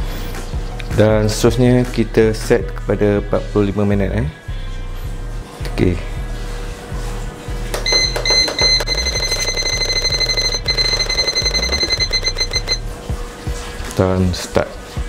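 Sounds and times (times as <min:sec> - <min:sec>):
pressure cooker beeping: 0:07.8 - 0:12.8.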